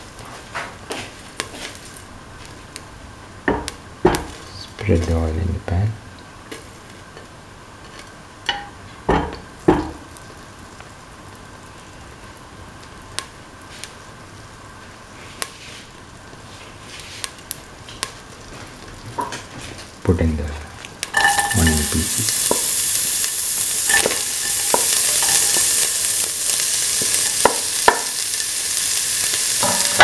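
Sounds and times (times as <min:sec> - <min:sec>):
oil hissing in a pan: 0:07.8 - 0:30.0.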